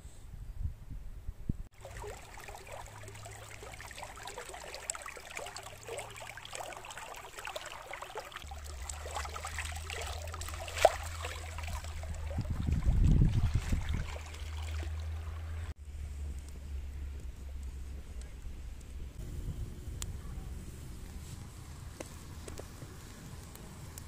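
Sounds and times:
stream babbling over stones: 0:01.7 - 0:15.8.

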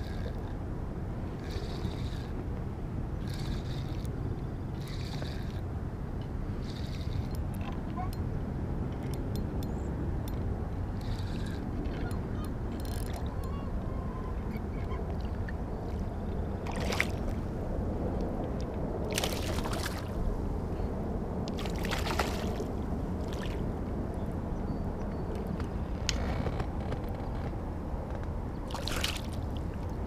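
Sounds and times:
fish splashing in water: 0:19.1 - 0:20.2, 0:21.6 - 0:23.6, 0:28.7 - 0:29.4.

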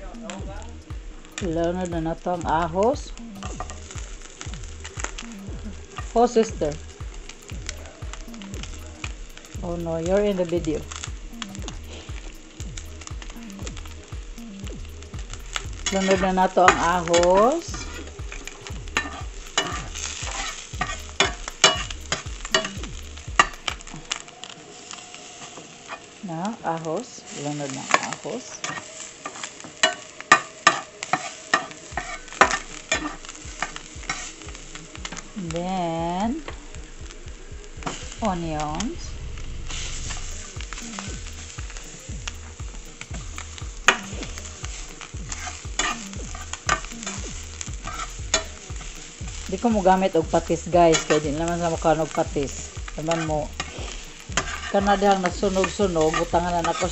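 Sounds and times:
garlic sizzling in oil: 0:00.0 - 0:56.9
spatula scraping a frying pan: 0:15.3 - 0:22.8, 0:27.8 - 0:34.5, 0:43.8 - 0:50.1, 0:50.8 - 0:51.2, 0:53.0 - 0:56.9.

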